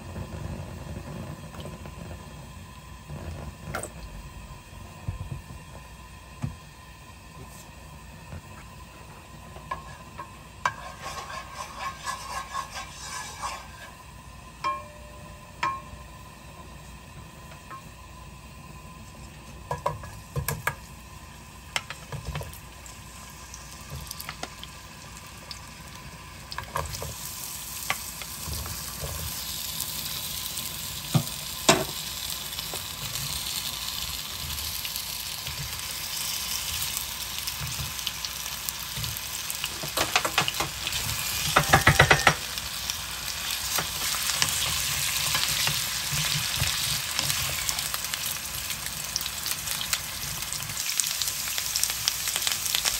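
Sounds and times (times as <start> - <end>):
potato slices sizzling in oil: 0.0 - 52.9
wooden spoons clattering in pan: 41.5 - 42.5.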